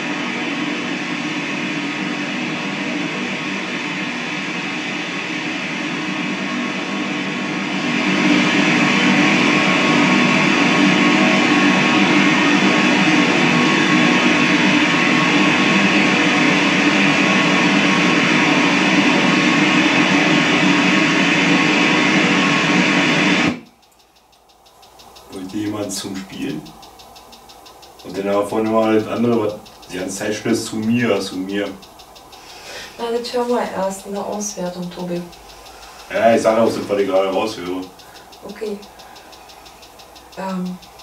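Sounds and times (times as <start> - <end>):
dense steady noise: 0.0 - 41.0
music-like fragments: 24.5 - 41.0.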